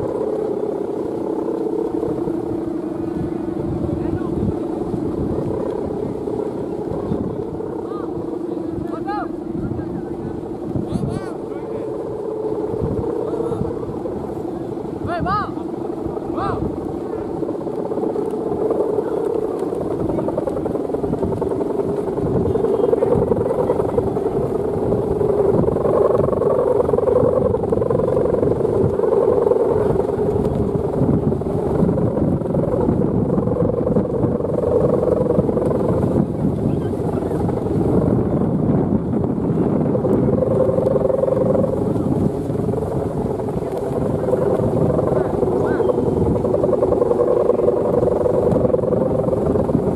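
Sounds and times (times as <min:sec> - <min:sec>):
kite bow hummer wavering hum: 0:00.0 - 0:49.9
rough wind noise: 0:00.0 - 0:49.9.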